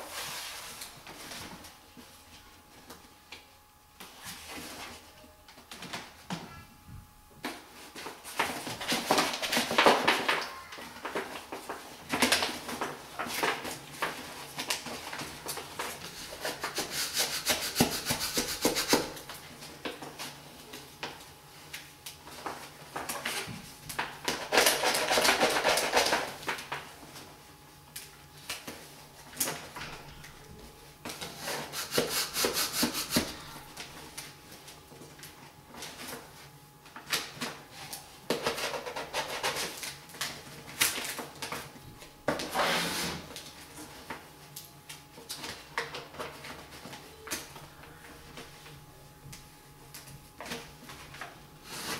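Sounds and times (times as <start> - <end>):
hand rubbing and tapping: 16.6 - 19.2.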